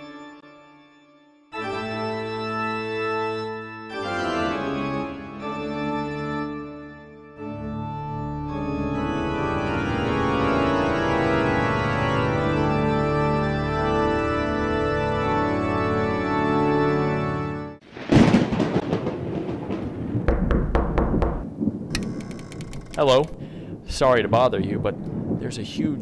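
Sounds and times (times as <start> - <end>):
organ music with held chords: 0.0 - 17.8
crackling with sharp cracks: 17.8 - 25.6.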